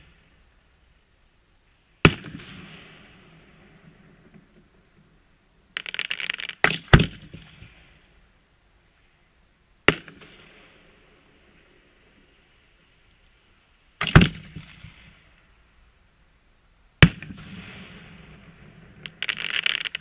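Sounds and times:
fireworks crackling: 1.6s - 16.0s, 17.0s - 20.0s
fireworks bangs: 2.0s - 8.2s, 14.0s - 15.5s, 17.0s - 20.0s.

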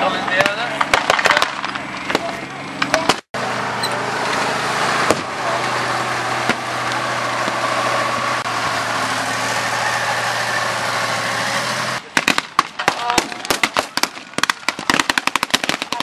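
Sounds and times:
vehicle engine running: 0.0s - 16.0s
sharp cracks: 0.3s - 3.3s, 12.0s - 16.0s.

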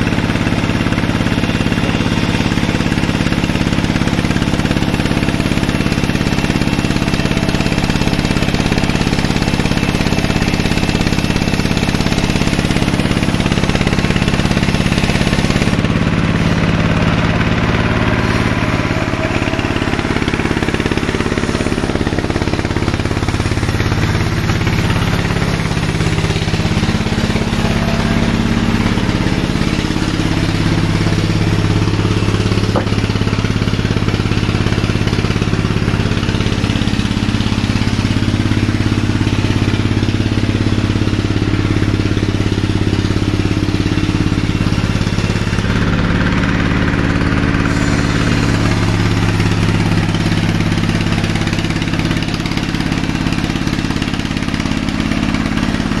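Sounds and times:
sawmill machinery running: 0.0s - 56.0s.

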